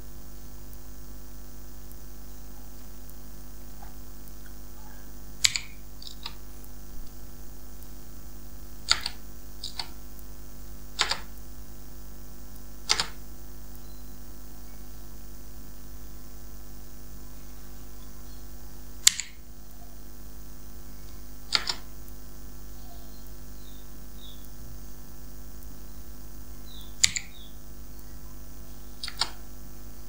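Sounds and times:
steady electrical hum: 0:00.0 - 0:30.0
computer mouse clicks: 0:05.4 - 0:06.4, 0:08.9 - 0:10.0, 0:11.0 - 0:11.4, 0:12.9 - 0:13.2, 0:19.0 - 0:19.4, 0:21.5 - 0:21.9, 0:27.0 - 0:27.4, 0:29.0 - 0:29.4.

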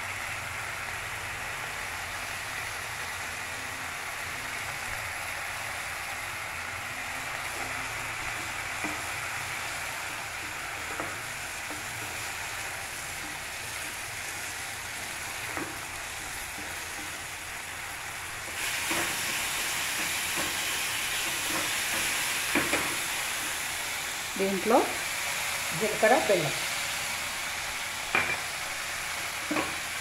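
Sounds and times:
leaves and chillies sizzling in oil: 0:00.0 - 0:30.0
spatula tapping a pan: 0:08.8 - 0:09.2, 0:10.8 - 0:12.3, 0:19.9 - 0:23.0, 0:29.5 - 0:29.8.

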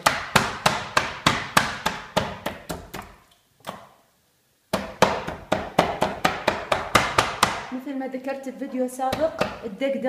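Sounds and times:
cleaver pounding meat on board: 0:00.0 - 0:03.1, 0:04.7 - 0:07.7, 0:09.1 - 0:09.6.

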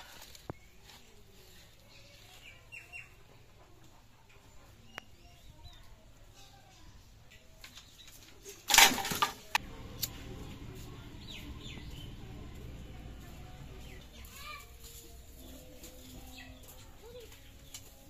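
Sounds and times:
bamboo sticks clattering onto twigs: 0:07.6 - 0:09.6.

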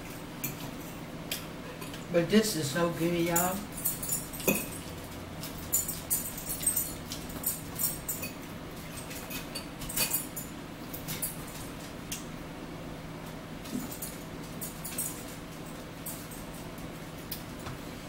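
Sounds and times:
low steady hum: 0:00.0 - 0:18.0
forks clicking on plates: 0:03.2 - 0:12.2.

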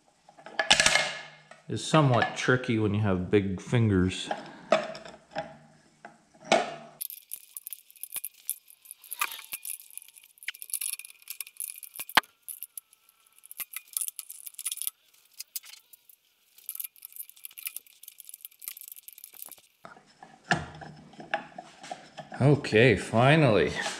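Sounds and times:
small metal parts clinking: 0:07.0 - 0:19.8.

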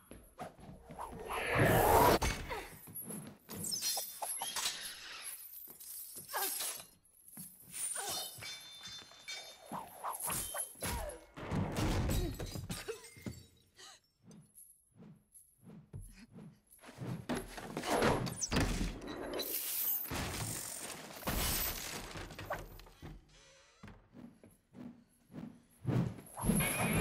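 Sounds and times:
whooshes of swinging chain: 0:00.4 - 0:11.3, 0:24.7 - 0:27.0.

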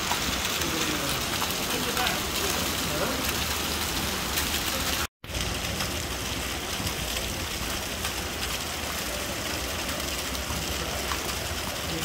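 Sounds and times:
rainwater gushing from drainpipe: 0:00.0 - 0:12.0.

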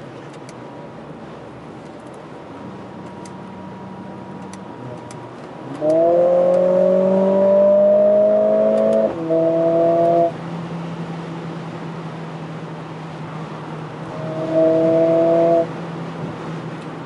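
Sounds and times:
car engine pulling hard: 0:02.6 - 0:17.0
gear shift: 0:04.4 - 0:06.8, 0:08.7 - 0:09.3.

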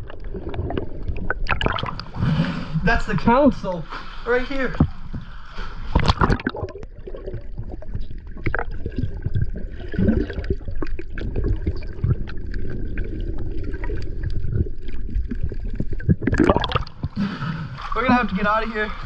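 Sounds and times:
underwater clicks and gurgles: 0:00.0 - 0:19.0
muffled underwater rumble: 0:04.7 - 0:19.0.

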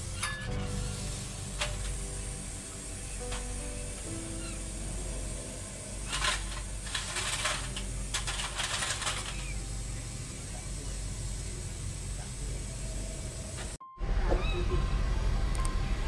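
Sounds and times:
low hum: 0:00.0 - 0:16.0
crinkly rustling: 0:06.0 - 0:09.6.

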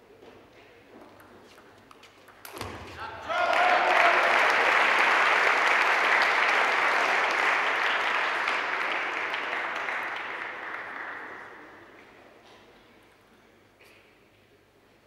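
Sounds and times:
crowd applauding: 0:03.3 - 0:12.2.

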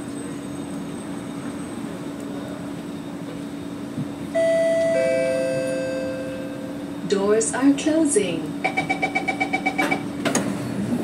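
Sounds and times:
train humming: 0:00.0 - 0:11.0
two-note door chime: 0:04.4 - 0:06.7.

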